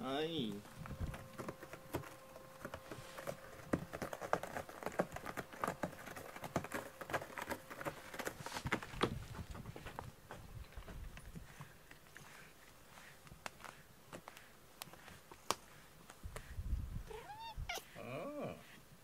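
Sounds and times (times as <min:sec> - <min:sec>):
cat claws scratching cardboard: 0:00.7 - 0:09.4, 0:11.4 - 0:16.6.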